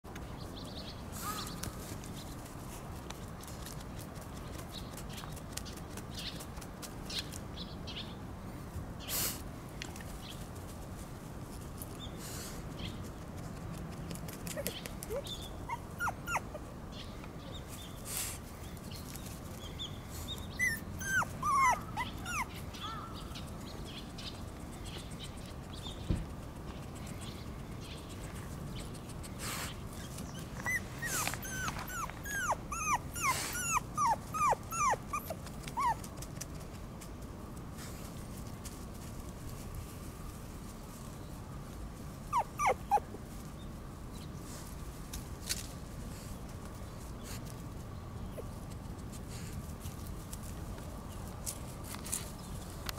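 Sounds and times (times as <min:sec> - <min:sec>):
puppy whimpering: 0:14.5 - 0:16.7, 0:20.6 - 0:22.6, 0:30.0 - 0:36.0, 0:42.3 - 0:43.1.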